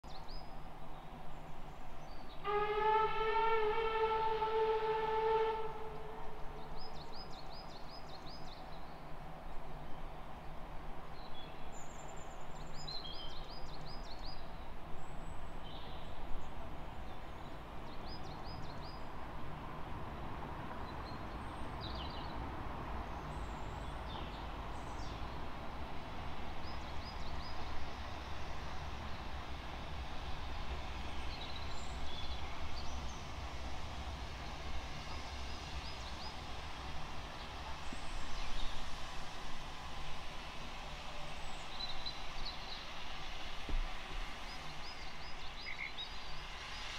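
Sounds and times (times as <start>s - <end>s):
low rumble of approaching train: 0.0s - 46.9s
distant train whistle: 2.4s - 6.8s.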